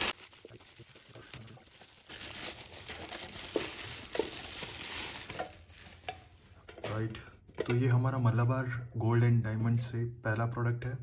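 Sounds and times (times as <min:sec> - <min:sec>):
bubble wrap and plastic crinkling: 0:00.0 - 0:07.0.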